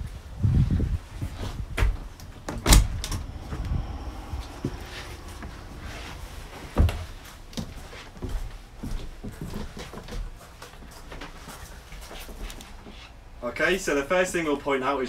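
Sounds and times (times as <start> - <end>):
low rumbling handling noise: 0.8 - 10.4.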